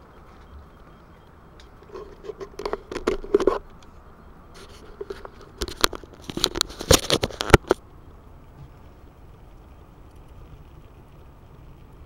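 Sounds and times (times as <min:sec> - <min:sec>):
camera handling clicks and scrapes: 0:01.8 - 0:03.9, 0:04.6 - 0:07.8.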